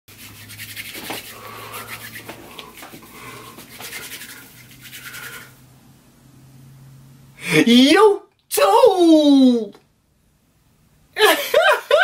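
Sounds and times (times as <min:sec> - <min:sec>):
palms rubbing together: 0:00.1 - 0:05.6.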